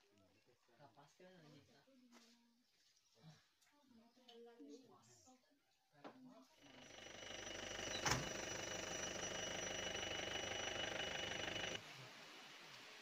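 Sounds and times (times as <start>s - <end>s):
thin high whine: 6.7s - 11.8s
vehicle engine running: 6.7s - 11.8s.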